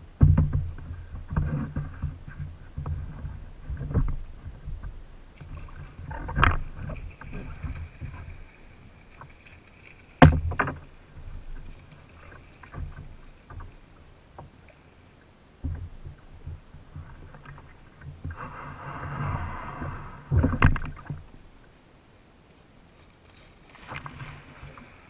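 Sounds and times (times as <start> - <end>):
water splashing and sloshing: 0.0 - 25.0
knocks against kayak hull: 0.2 - 8.3, 10.2 - 11.8.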